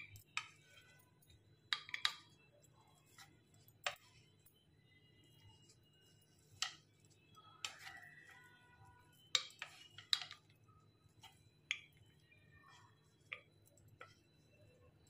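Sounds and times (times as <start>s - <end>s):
wooden spatula tapping a pan: 0.0s - 1.0s, 1.7s - 4.2s, 6.5s - 8.5s, 9.1s - 10.6s.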